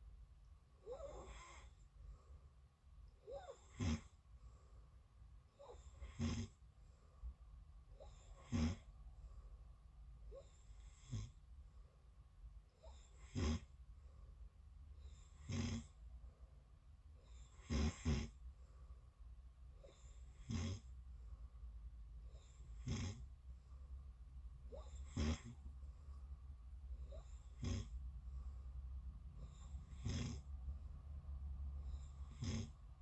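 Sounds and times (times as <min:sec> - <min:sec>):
person snoring: 0:03.3 - 0:04.2, 0:05.6 - 0:06.6, 0:08.0 - 0:08.9, 0:12.8 - 0:13.7, 0:15.1 - 0:16.0, 0:17.3 - 0:18.4, 0:19.8 - 0:20.9, 0:22.3 - 0:23.3, 0:24.7 - 0:25.6, 0:27.0 - 0:28.0, 0:29.4 - 0:30.5, 0:31.8 - 0:32.8.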